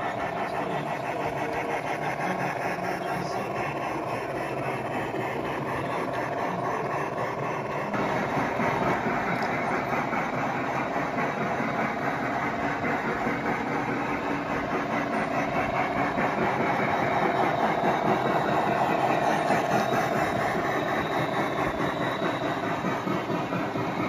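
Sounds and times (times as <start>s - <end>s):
model trains rolling on track: 0.0s - 24.0s.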